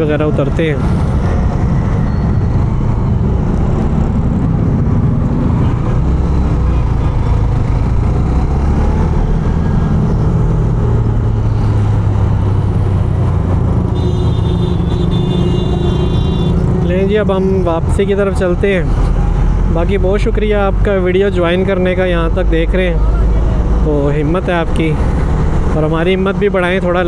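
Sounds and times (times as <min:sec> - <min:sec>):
other vehicles: 0:00.0 - 0:27.0
wind and road noise: 0:00.0 - 0:27.0.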